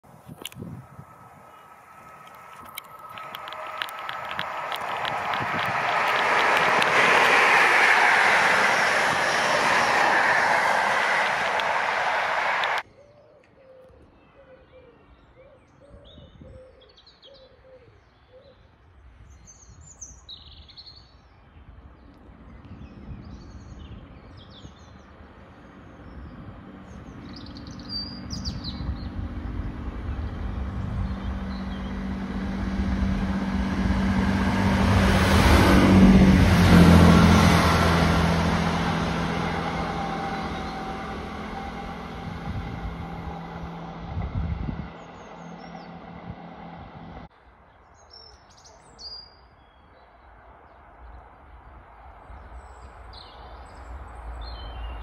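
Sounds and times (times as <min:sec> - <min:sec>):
train engine hum passing: 0:00.0 - 0:12.9, 0:25.0 - 0:47.3
birds chirping: 0:01.0 - 0:18.6, 0:19.5 - 0:32.4, 0:38.9 - 0:44.1, 0:44.8 - 0:46.7.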